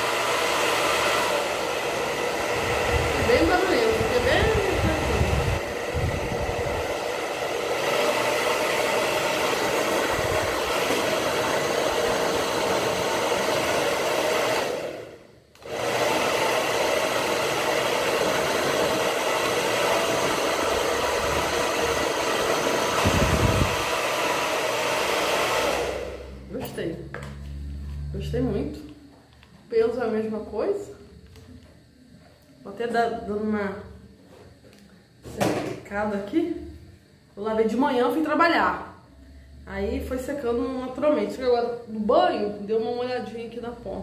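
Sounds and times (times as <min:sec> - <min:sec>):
hair dryer whirring: 0:00.0 - 0:30.4.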